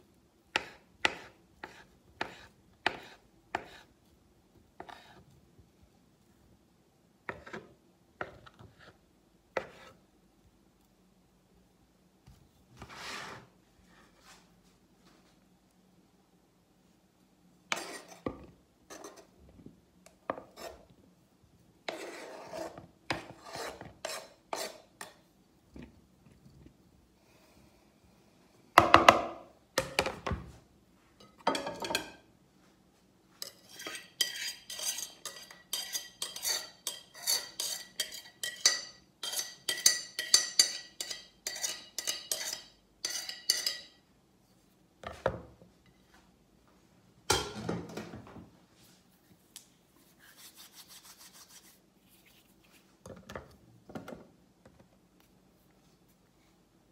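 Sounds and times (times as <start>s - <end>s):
spatula scraping food: 0.5s - 4.0s, 4.8s - 5.4s, 7.3s - 10.0s, 12.8s - 13.6s, 17.7s - 19.4s, 20.3s - 20.9s, 21.8s - 25.2s, 33.4s - 44.0s, 50.1s - 52.8s.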